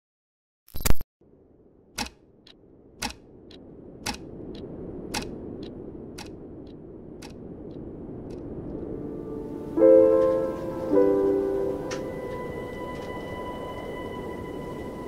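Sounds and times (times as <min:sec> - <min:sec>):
low rushing ambience: 0:01.2 - 0:15.0
clock ticking: 0:02.0 - 0:08.4.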